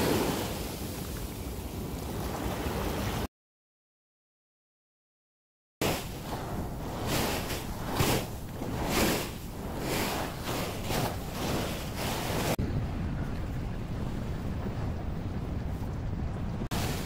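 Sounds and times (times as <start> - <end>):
small waves breaking on sand: 0.0 - 3.3, 5.8 - 12.6, 16.7 - 17.0
wind on microphone: 5.8 - 17.0.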